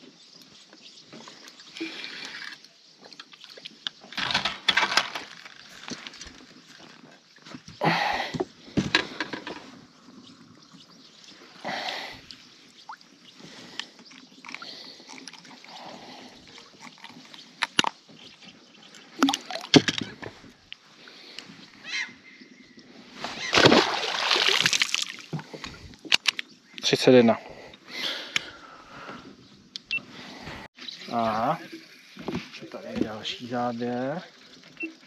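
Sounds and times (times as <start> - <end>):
water sloshing: 11.7 - 20.2, 23.2 - 26.0.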